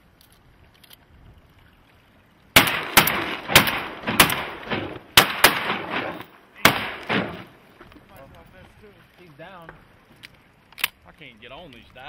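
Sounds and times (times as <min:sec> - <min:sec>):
shotgun shots: 0:02.6 - 0:07.6.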